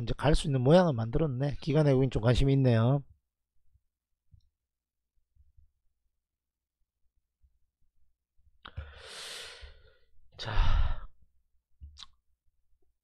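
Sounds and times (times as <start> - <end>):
man sighing: 8.7 - 11.1.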